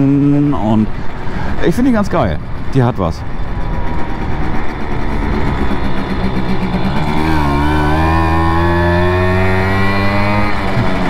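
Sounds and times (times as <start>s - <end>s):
moped engine accelerating: 0.0s - 11.0s.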